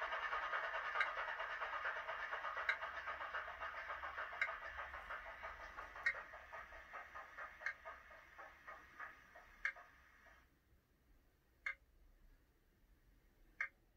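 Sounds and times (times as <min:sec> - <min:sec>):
diesel engine through small speaker: 0:00.0 - 0:10.4.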